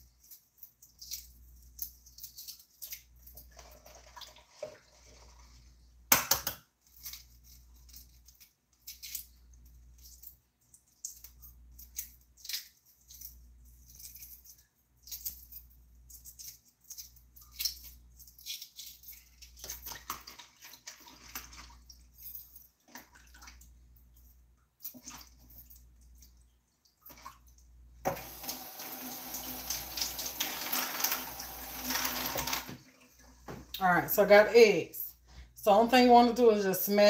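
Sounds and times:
egg shells crackling: 0:00.1 - 0:03.5, 0:06.8 - 0:20.3, 0:28.2 - 0:32.7
kitchen faucet running: 0:28.0 - 0:32.9.

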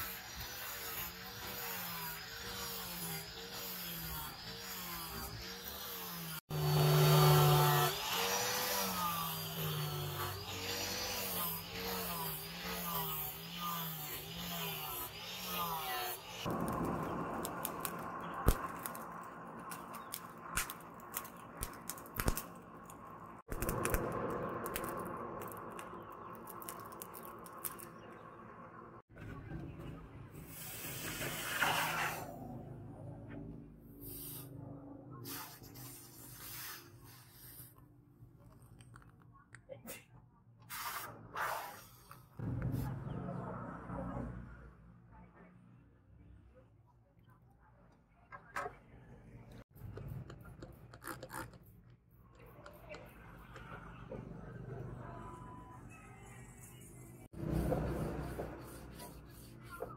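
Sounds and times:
angle grinder grinding steel: 0:00.0 - 0:16.5
forge fire crackling and popping: 0:16.5 - 0:27.8.

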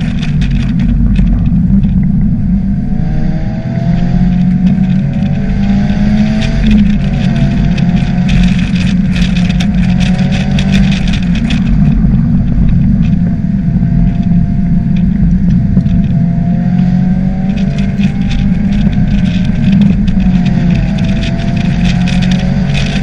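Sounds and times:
vehicle engine and road drone: 0:00.0 - 0:23.0.

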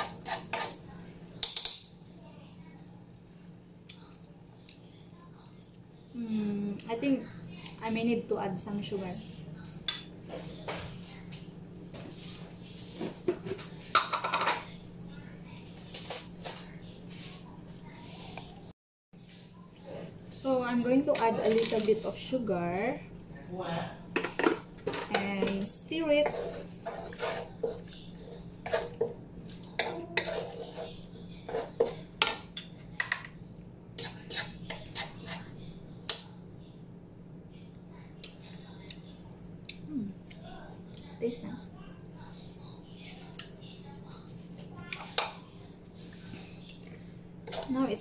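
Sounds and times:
metal utensil scraping cooking pan: 0:00.0 - 0:00.8, 0:24.2 - 0:32.5, 0:34.0 - 0:35.5
steady low hum: 0:00.0 - 0:48.0.

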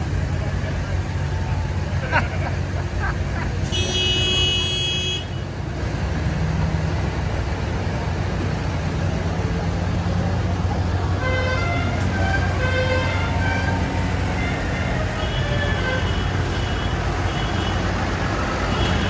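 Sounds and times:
tractor diesel engines: 0:00.0 - 0:19.0
vehicle horn: 0:03.7 - 0:05.5, 0:11.2 - 0:17.9.

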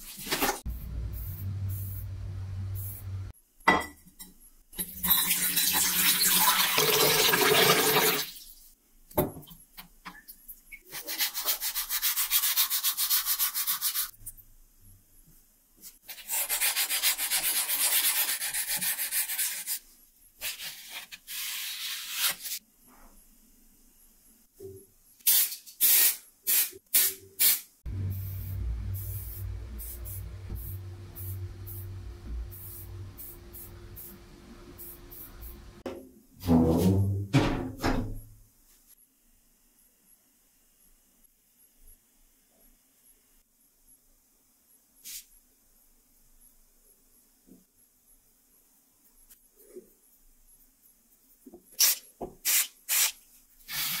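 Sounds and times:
steady low hum: 0:00.7 - 0:03.4, 0:27.8 - 0:35.9.

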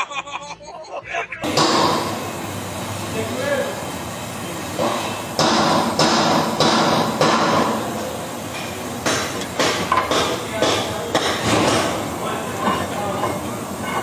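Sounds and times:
workshop noise: 0:01.3 - 0:14.0
metal knocks and clanks: 0:01.4 - 0:02.3, 0:04.8 - 0:14.0.

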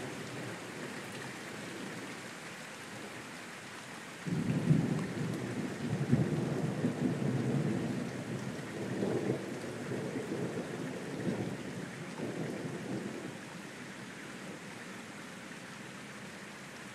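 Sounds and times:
steady rain: 0:00.0 - 0:16.9
thunder rolling and rumbling: 0:04.3 - 0:13.3.

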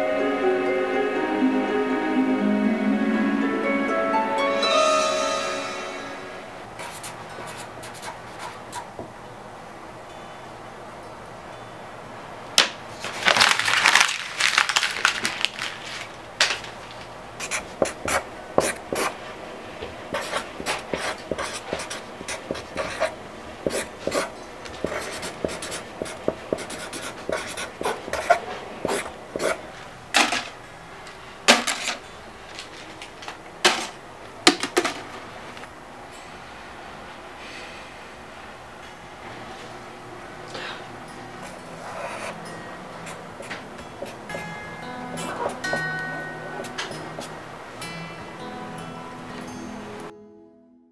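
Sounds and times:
marker scratching on paper: 0:06.8 - 0:09.0, 0:17.4 - 0:19.2, 0:20.1 - 0:29.6, 0:41.4 - 0:42.4, 0:43.0 - 0:44.2, 0:45.2 - 0:47.3.

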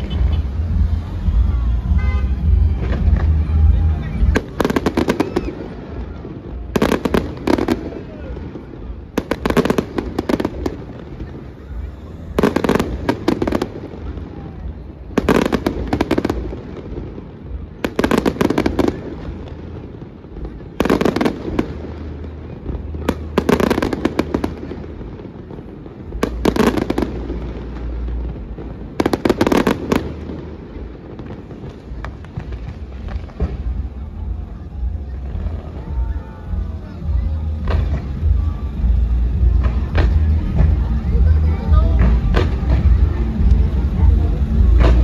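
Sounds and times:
fireworks bursting and crackling: 0:00.0 - 0:45.0
steady low rumble: 0:00.0 - 0:45.0.

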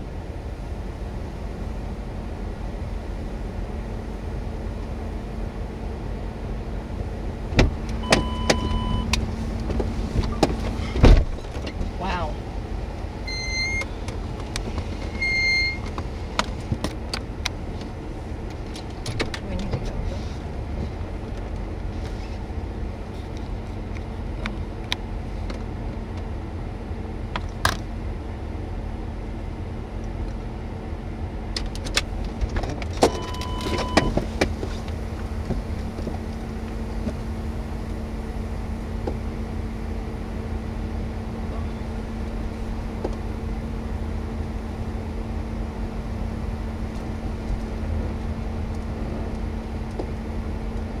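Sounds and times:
car engine rumble: 0:00.0 - 0:51.0
short electronic beep: 0:08.0 - 0:09.1, 0:13.3 - 0:13.9, 0:15.2 - 0:15.8.

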